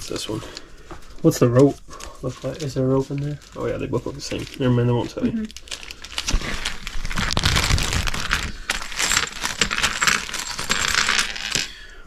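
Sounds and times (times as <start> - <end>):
plastic bag rustling: 0.0 - 11.7
small game pieces clinking: 8.7 - 11.7.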